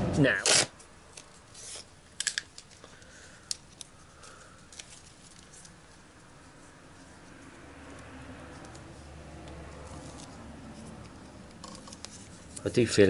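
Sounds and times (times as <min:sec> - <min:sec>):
tape peeling hiss: 0:00.4 - 0:02.0.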